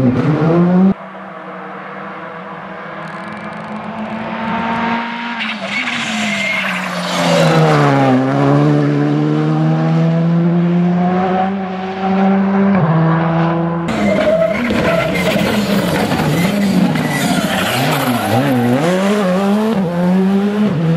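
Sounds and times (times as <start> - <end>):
rally car engine passing by: 0.0 - 20.9.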